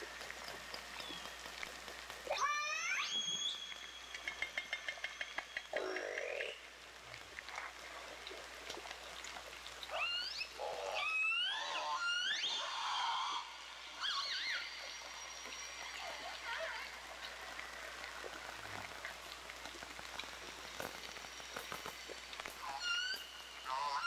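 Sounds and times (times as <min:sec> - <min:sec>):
steady hiss: 0:12.8 - 0:24.0.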